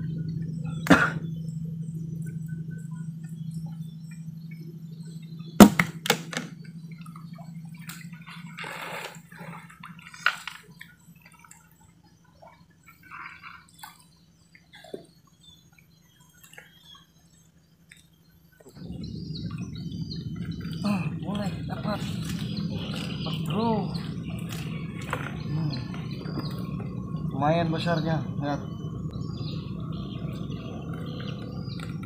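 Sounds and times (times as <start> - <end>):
low hum: 0.0 - 32.0
sharp knocks: 5.6 - 6.5.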